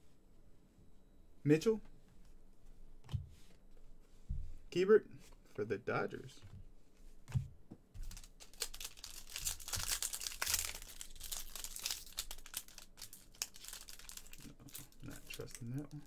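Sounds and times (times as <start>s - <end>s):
foil wrapper tearing and crinkling: 8.0s - 15.8s.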